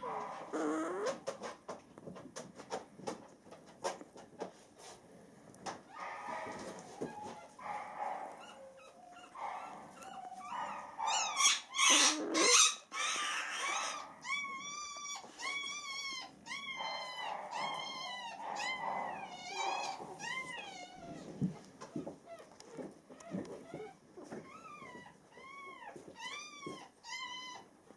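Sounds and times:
puppies squealing and whimpering: 5.9s - 21.3s, 21.9s - 27.7s.

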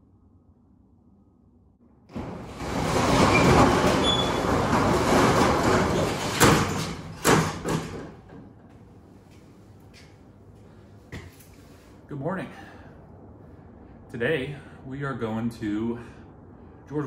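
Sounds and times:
metal roll-up door rattling: 2.1s - 8.6s.

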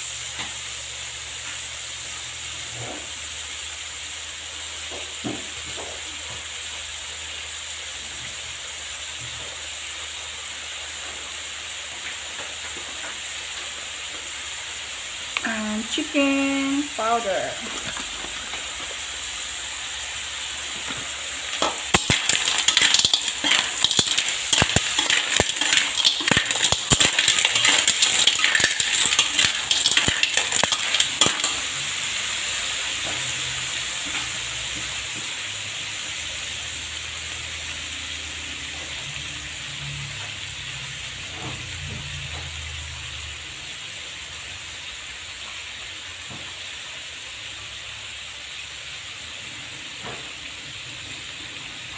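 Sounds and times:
steady sizzle: 0.0s - 51.9s
metal spatula scraping pan: 21.6s - 31.9s.

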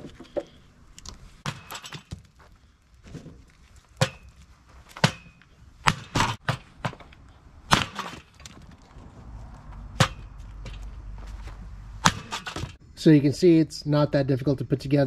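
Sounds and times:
axe chopping wood: 1.4s - 2.3s, 4.0s - 8.6s, 9.9s - 10.8s, 12.0s - 12.8s.

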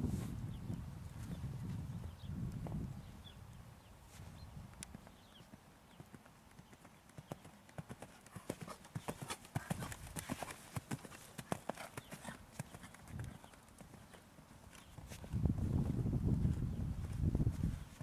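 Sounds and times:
horse hoofbeats cantering on sand: 4.8s - 18.0s.

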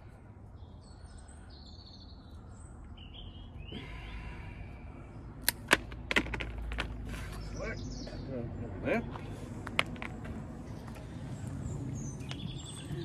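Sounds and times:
birds chirping: 0.0s - 5.4s, 6.5s - 13.0s
sharp clicks on rubber hose: 5.4s - 6.9s.

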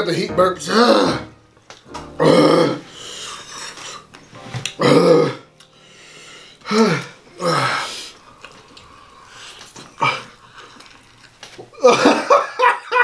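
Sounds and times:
man burping: 2.2s - 2.8s, 4.8s - 5.5s, 6.6s - 7.9s.

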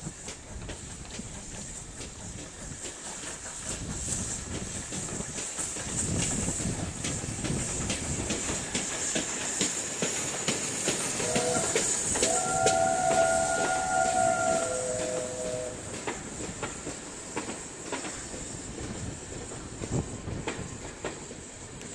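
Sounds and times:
steam hiss: 0.0s - 21.9s
train wheels clicking over rail joints: 0.0s - 21.9s.

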